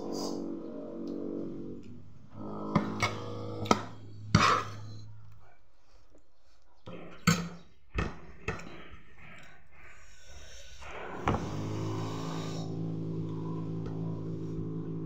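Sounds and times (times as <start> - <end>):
background music sustained notes: 0.0 - 7.6, 10.4 - 15.0.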